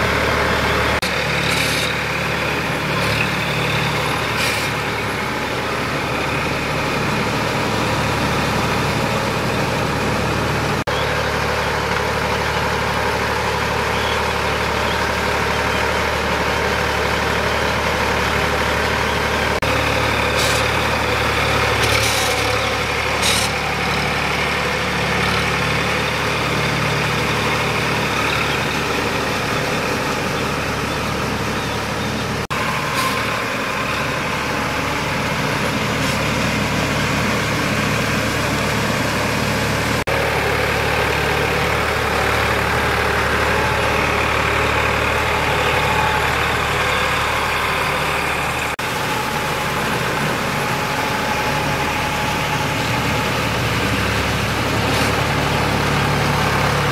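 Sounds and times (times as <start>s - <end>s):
tractor diesel engine running: 0.0s - 56.9s.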